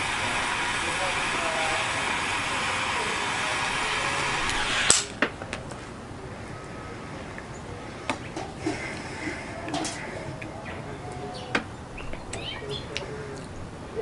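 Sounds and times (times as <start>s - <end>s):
torch lighter hissing: 0.0s - 5.2s.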